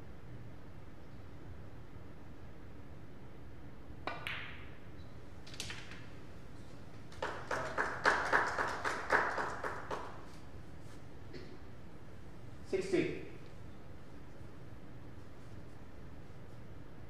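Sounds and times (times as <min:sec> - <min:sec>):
cue tip striking ball: 0:04.1 - 0:04.7
billiard balls clicking together: 0:05.4 - 0:06.1
people clapping: 0:07.1 - 0:10.4.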